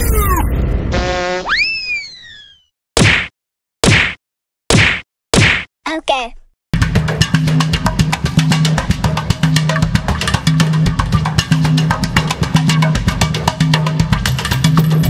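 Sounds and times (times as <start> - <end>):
dance music with drum beat: 6.8 - 15.0.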